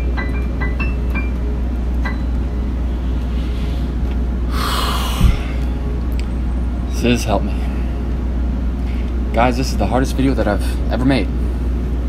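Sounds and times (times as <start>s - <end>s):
music: 0.0s - 6.6s
low hum: 1.5s - 7.0s
sharp forceful breath: 2.9s - 5.7s
low thump: 5.2s - 5.5s.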